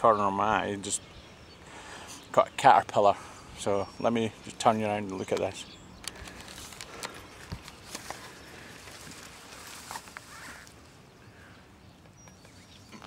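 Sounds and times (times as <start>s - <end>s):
faint outdoor background noise: 0.0s - 13.0s
camera handling clicks and rustles: 5.0s - 10.3s.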